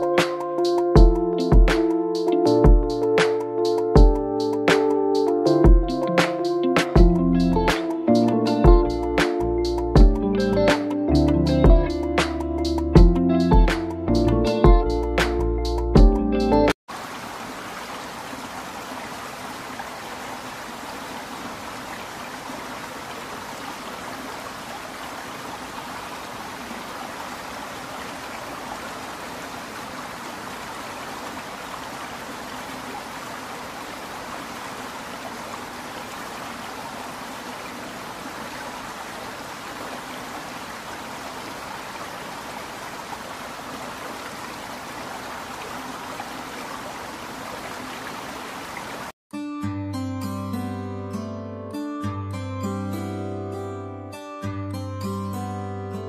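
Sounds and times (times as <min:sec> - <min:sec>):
waterfall splashing: 0:16.9 - 0:49.2.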